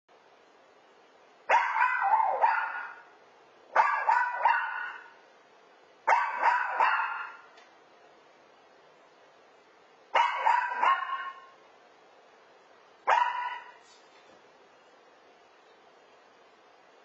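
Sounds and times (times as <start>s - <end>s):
puppy barking: 1.5s - 3.1s, 3.7s - 5.2s, 6.1s - 7.6s, 10.2s - 11.6s, 13.1s - 13.8s.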